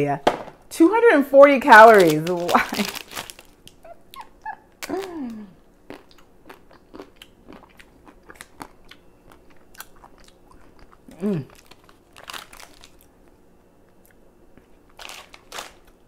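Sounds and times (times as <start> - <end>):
plastic wrapper crinkling: 1.6 - 3.8, 11.5 - 13.1, 14.9 - 16.0
crunching and chewing ice cream bar: 1.8 - 13.3, 13.9 - 16.0
person humming: 4.8 - 5.6, 11.1 - 11.6.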